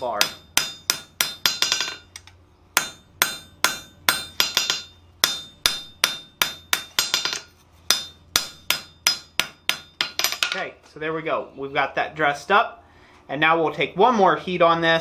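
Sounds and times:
hammer striking metal on anvil: 0.0s - 2.2s, 2.8s - 10.6s.

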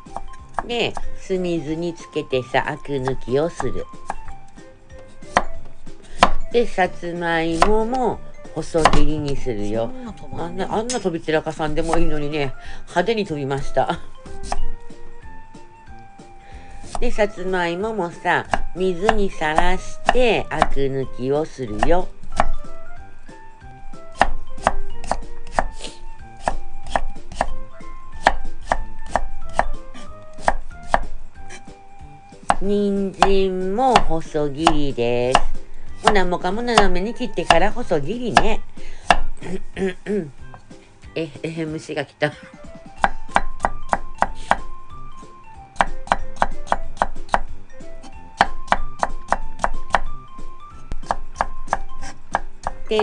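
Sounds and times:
knife chopping on wooden board: 0.0s - 1.1s, 2.9s - 4.4s, 5.0s - 6.5s, 7.4s - 8.0s, 8.7s - 9.4s, 11.7s - 12.3s, 14.2s - 14.8s, 18.4s - 20.9s, 21.8s - 22.7s, 23.9s - 31.7s, 32.3s - 39.4s, 43.0s - 44.8s, 45.8s - 50.2s, 50.9s - 53.0s.

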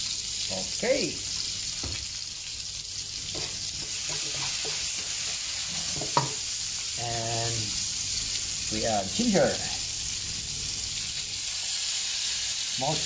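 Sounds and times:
garlic and onion sizzling in oil: 0.0s - 13.0s
spatula scraping wok: 3.3s - 6.5s.

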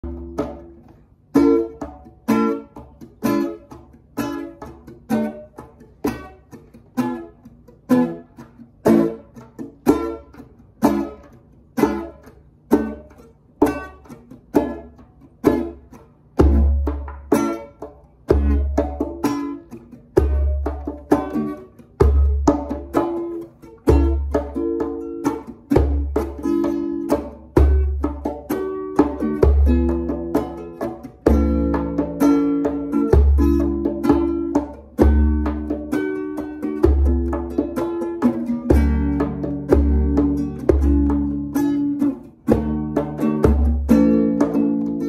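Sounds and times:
acoustic guitar plucking: 0.0s - 45.0s
hand drum strokes: 16.4s - 45.0s.

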